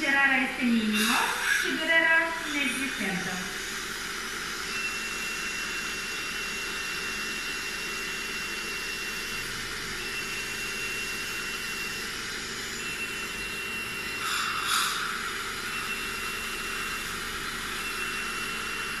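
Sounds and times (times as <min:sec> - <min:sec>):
high-pitched laser tone: 0:00.0 - 0:19.0
dental suction hissing: 0:00.7 - 0:03.7, 0:14.1 - 0:16.9.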